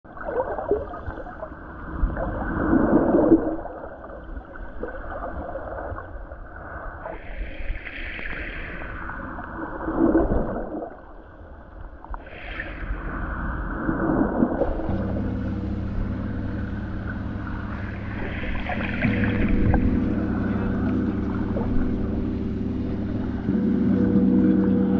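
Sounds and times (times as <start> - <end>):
underwater sloshing and gurgling: 0.1 - 24.9
higher hiss: 14.7 - 24.9.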